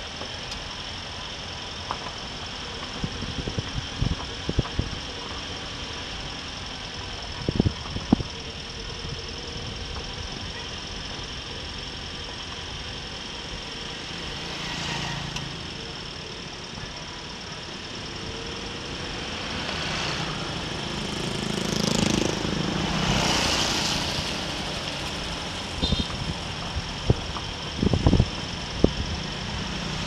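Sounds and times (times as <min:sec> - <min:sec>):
vehicle engine and road noise: 0:00.0 - 0:30.0
motorbike passing: 0:13.9 - 0:16.4, 0:17.6 - 0:26.9
wind on microphone: 0:25.8 - 0:29.2.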